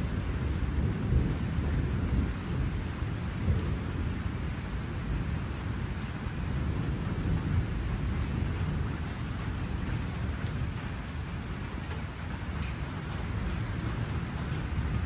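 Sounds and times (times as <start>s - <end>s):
rolling thunder: 0.0s - 11.8s
steady rain: 0.0s - 15.0s.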